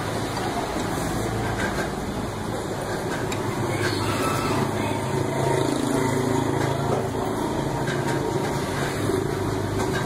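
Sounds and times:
small engine running: 3.7s - 7.7s.

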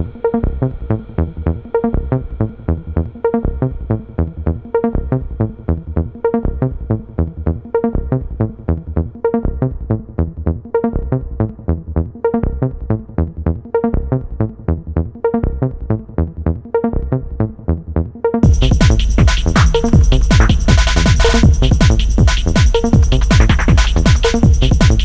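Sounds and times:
electronic music with fast beat: 18.4s - 25.0s.

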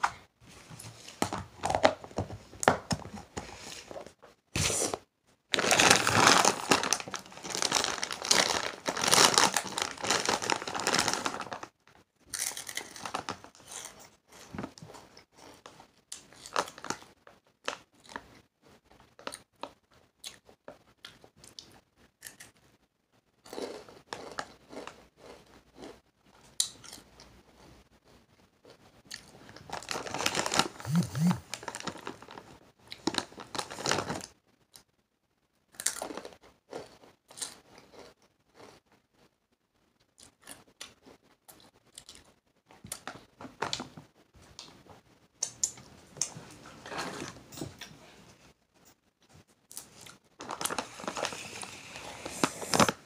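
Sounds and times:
chip bag crinkling: 5.5s - 11.7s, 12.3s - 14.0s, 29.6s - 34.3s, 49.7s - 53.0s.

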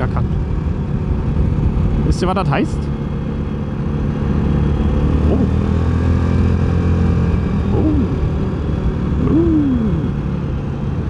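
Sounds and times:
quad engine running: 0.0s - 11.0s.

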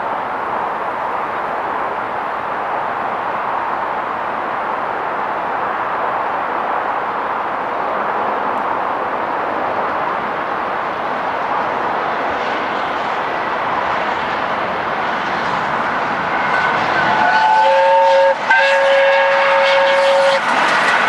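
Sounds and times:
steam train rushing past: 0.0s - 21.0s.

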